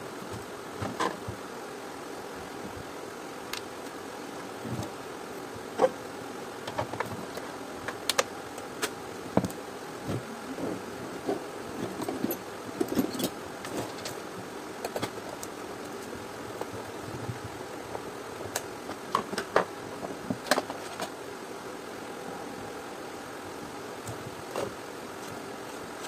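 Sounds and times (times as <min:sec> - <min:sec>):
background hiss: 0:00.0 - 0:26.0.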